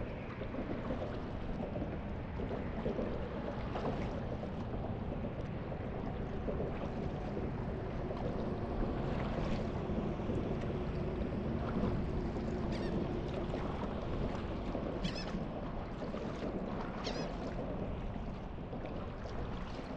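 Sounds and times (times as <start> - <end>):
low steady rumble: 0.0 - 19.9
water lapping and splashing: 0.0 - 19.9
water sloshing: 0.1 - 19.9.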